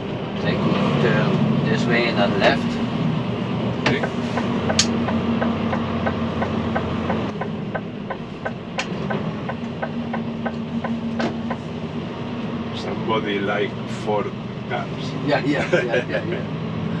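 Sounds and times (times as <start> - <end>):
diesel engine humming: 0.0 - 17.0
turn signal ticking: 3.8 - 11.7.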